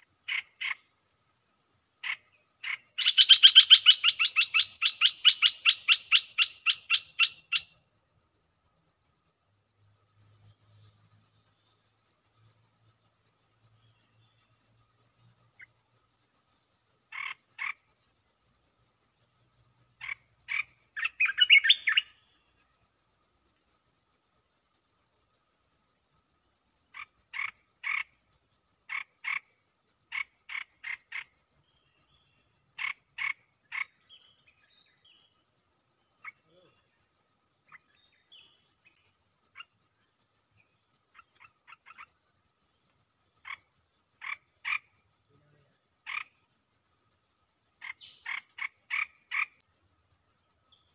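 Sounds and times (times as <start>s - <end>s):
high insect trill: 0.0s - 50.9s
bulbul calling: 2.0s - 7.8s, 20.0s - 22.2s.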